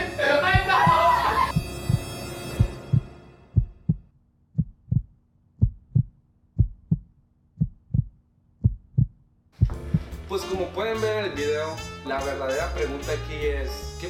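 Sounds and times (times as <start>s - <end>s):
heartbeat thumps: 0.6s - 10.3s.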